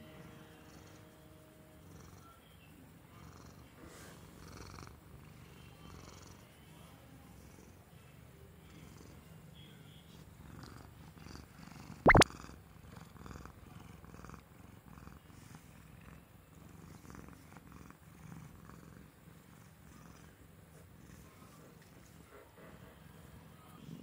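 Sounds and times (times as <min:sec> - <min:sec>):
cat purring: 0:01.8 - 0:06.5, 0:10.1 - 0:24.0.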